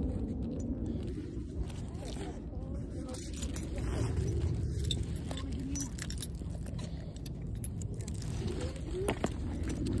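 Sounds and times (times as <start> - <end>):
steady low rumble: 0.0 - 10.0
chain leash jingling: 3.0 - 10.0.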